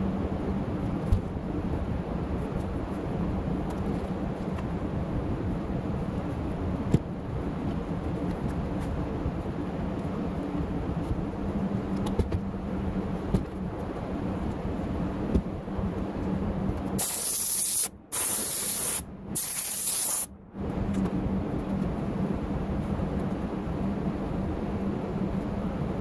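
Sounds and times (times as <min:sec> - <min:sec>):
steady low hum: 0:00.0 - 0:26.0
spray gun hissing: 0:17.0 - 0:20.3.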